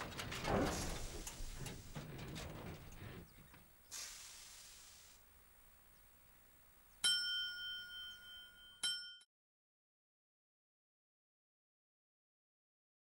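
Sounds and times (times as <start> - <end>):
metallic chime ringing: 7.0 - 9.3.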